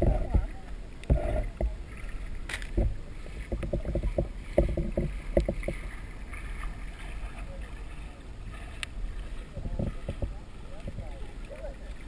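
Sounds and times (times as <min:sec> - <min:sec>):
water gurgling and bubbling: 0:00.0 - 0:12.0.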